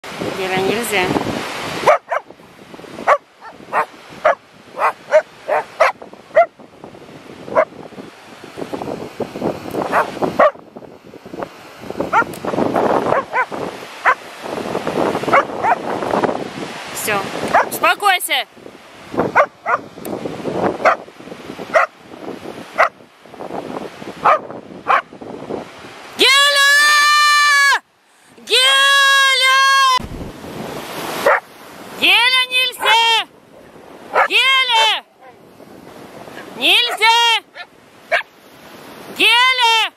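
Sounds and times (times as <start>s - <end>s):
wind and surf hiss: 0.0s - 39.9s
dog barking: 1.8s - 2.3s, 3.0s - 6.5s, 7.5s - 7.7s, 9.8s - 10.6s, 12.1s - 12.3s, 13.0s - 14.2s, 15.3s - 15.9s, 17.5s - 17.8s, 19.3s - 19.9s, 20.8s - 21.0s, 21.7s - 22.0s, 22.8s - 23.0s, 24.2s - 25.1s, 31.2s - 31.5s, 34.1s - 35.4s, 36.4s - 38.3s.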